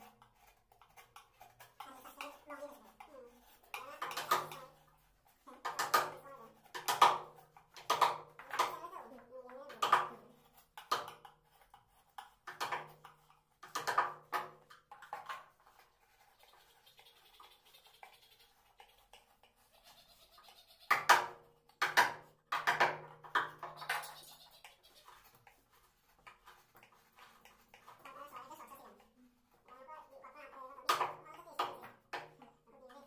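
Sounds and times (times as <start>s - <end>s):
chisel scraping wood: 0.0s - 8.6s.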